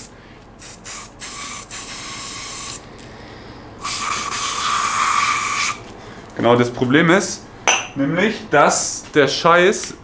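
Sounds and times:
aerosol can spraying: 0.0 - 2.8, 3.8 - 5.8.

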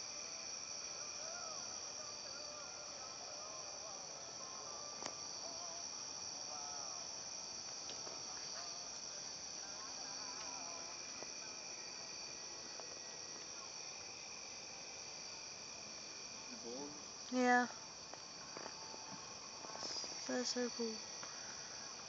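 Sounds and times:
crickets trilling: 0.0 - 22.0
faint ticks: 7.7 - 9.1, 10.3 - 10.6.

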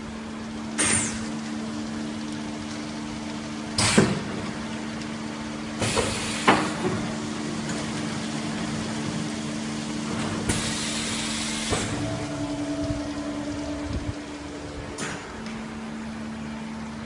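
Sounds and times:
packaging machine humming: 0.0 - 17.0
air hissing: 10.5 - 12.3.

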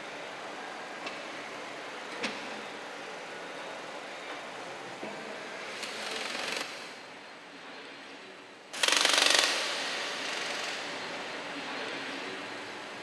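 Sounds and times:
embroidery machine stitching: 8.8 - 10.8.

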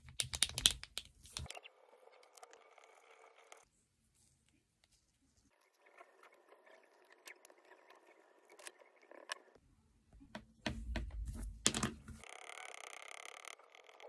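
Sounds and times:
markers knocking and clicking: 0.0 - 1.5.

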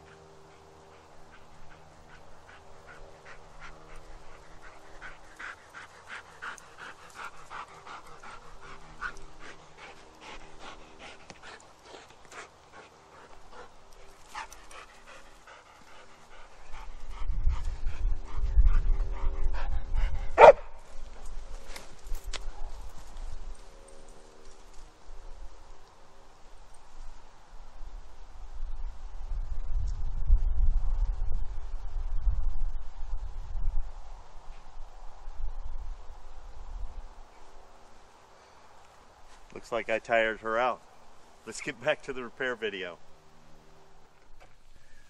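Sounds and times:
dog panting: 0.0 - 20.6.

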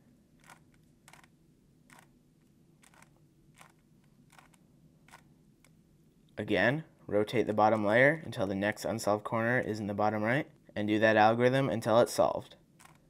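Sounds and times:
puzzle cube clicking as turned: 0.4 - 1.3, 1.9 - 2.1, 2.8 - 5.8, 12.8 - 13.0.

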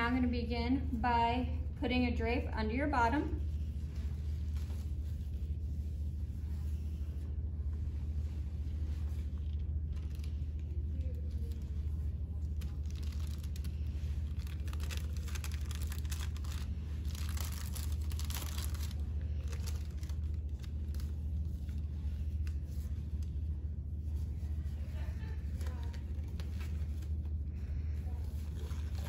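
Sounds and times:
steady low hum: 0.0 - 29.0
paper wrapper crinkling: 8.9 - 23.4, 24.1 - 27.4, 28.2 - 29.0.

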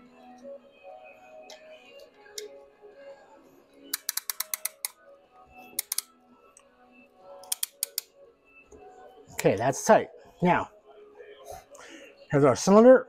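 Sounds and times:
ratchet clicking: 3.9 - 5.0, 5.8 - 6.1, 7.4 - 8.1.

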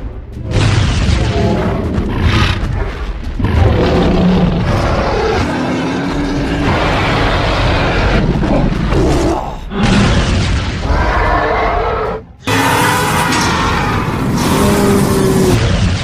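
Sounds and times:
booming impact sound effects: 0.4 - 2.0.

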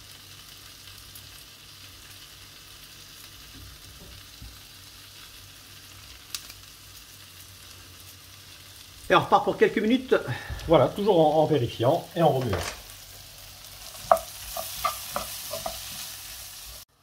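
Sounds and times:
vegetables sizzling in a frying pan: 0.0 - 17.0.

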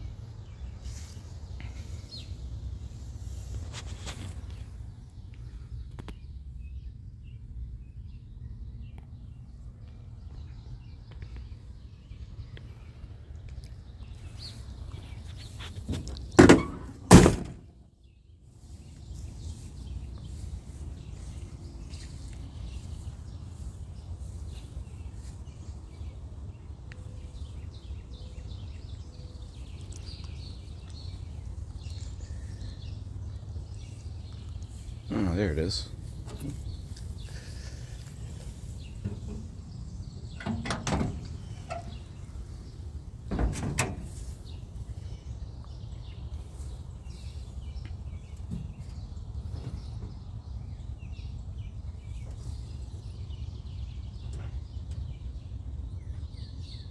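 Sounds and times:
hood hinges creaking: 14.9 - 17.7, 36.0 - 44.8
car hood clunking: 15.9 - 17.7, 39.0 - 42.1, 43.3 - 44.2
car door thudding shut: 16.4 - 17.7, 43.3 - 44.1.

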